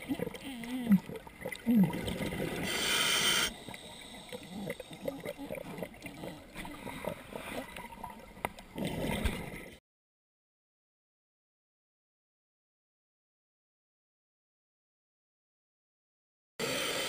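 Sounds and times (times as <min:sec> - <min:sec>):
exhaled bubbles rushing: 0:00.0 - 0:02.8, 0:04.3 - 0:09.8
underwater gurgling: 0:00.0 - 0:09.8
breath hissing through regulator: 0:02.6 - 0:05.3, 0:16.6 - 0:17.0.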